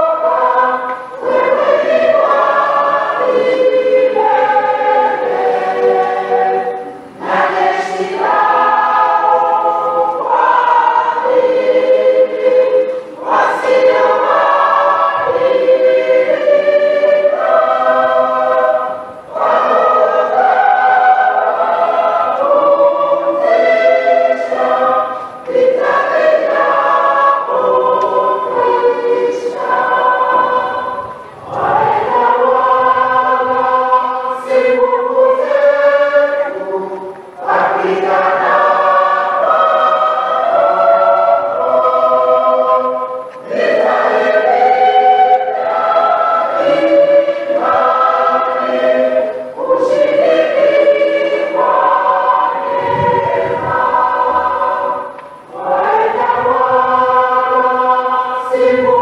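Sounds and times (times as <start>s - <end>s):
choir singing a hymn: 0.0s - 59.0s.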